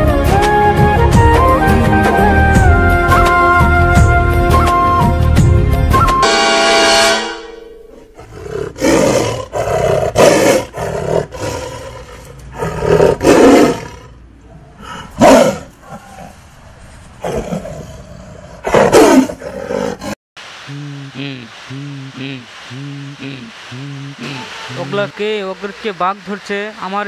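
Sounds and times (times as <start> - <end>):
tiger roaring and snarling: 7.9 - 16.4, 17.2 - 20.2.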